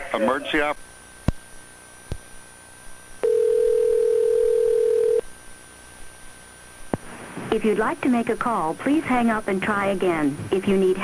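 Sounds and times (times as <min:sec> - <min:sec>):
steady telephone tone: 0:03.2 - 0:05.2.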